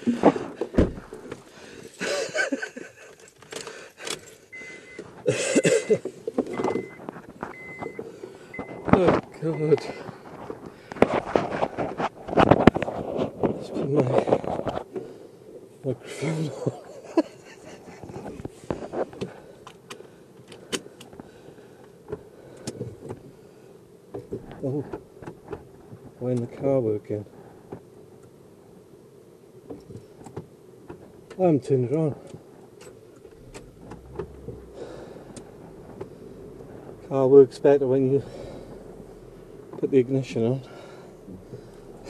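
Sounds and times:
microphone handling clicks and rustles: 0:00.0 - 0:05.3, 0:06.0 - 0:15.8, 0:17.7 - 0:23.3, 0:24.1 - 0:26.7, 0:29.6 - 0:42.0
car keys jangling: 0:03.1 - 0:05.2
dashboard warning chime beeping: 0:04.5 - 0:10.1.

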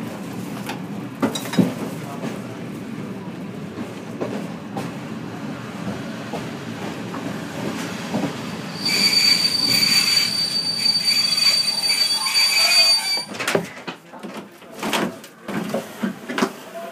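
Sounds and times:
train rumbling on rails: 0:00.0 - 0:14.0
high-pitched brake squeal: 0:08.7 - 0:13.4.

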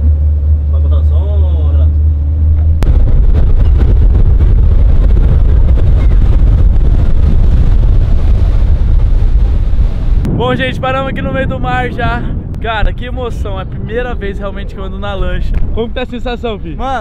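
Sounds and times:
motorboat running: 0:00.0 - 0:10.3
wind buffeting microphone: 0:01.4 - 0:17.0.

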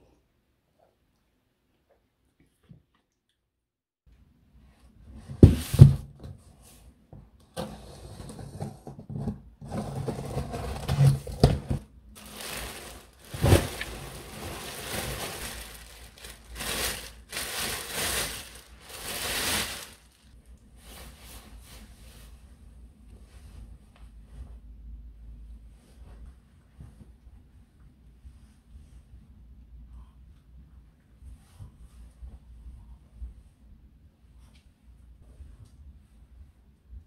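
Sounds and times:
plastic bag crinkling: 0:12.2 - 0:20.3.

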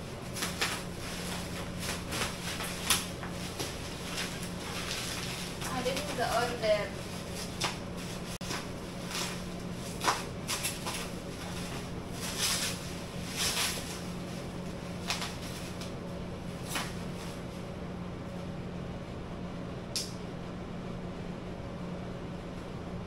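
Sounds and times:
steady low hum: 0:00.0 - 0:23.0
paper and packaging rustling: 0:00.2 - 0:15.9.

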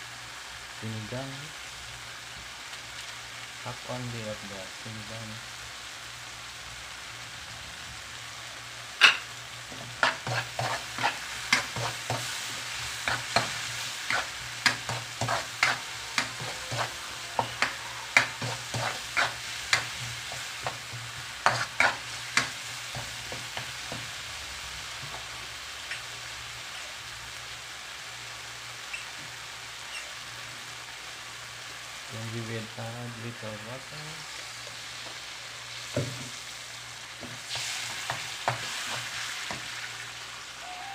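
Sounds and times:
faint sizzle: 0:00.0 - 0:40.9
metal spoon scraping a wok: 0:09.8 - 0:23.4.

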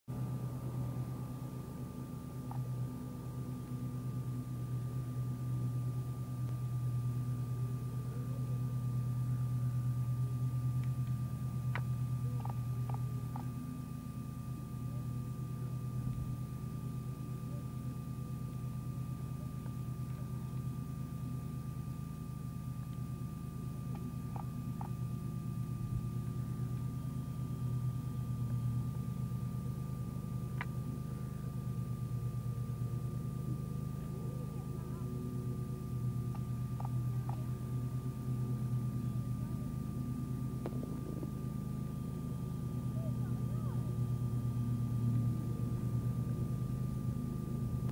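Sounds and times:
faint high whine: 0:00.1 - 0:47.9
low mechanical hum: 0:00.1 - 0:47.9.

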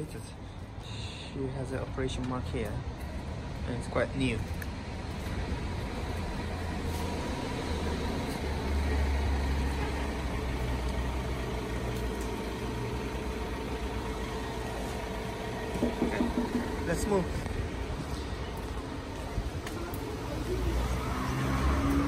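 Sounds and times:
vehicle engine humming: 0:00.0 - 0:22.0.

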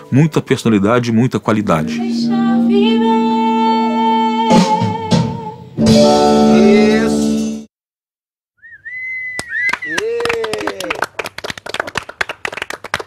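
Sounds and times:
instrumental accompaniment: 0:01.6 - 0:07.7
woman singing with vibrato: 0:01.9 - 0:05.7.

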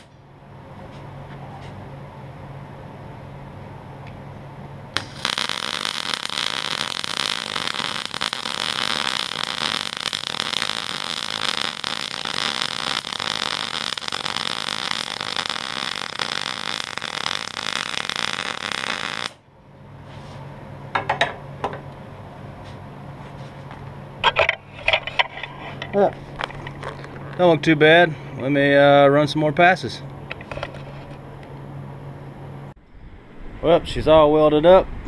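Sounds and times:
welding arc buzzing: 0:04.9 - 0:19.4.

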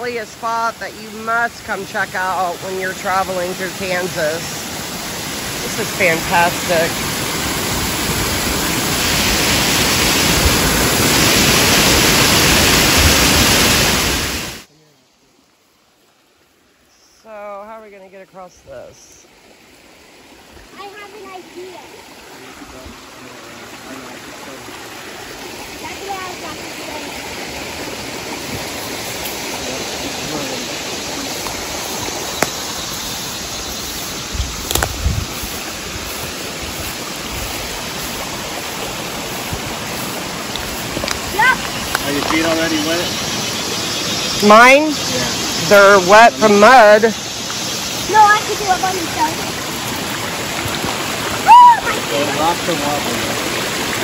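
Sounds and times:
water rushing over waterfall: 0:00.0 - 0:14.7, 0:19.4 - 0:54.0.

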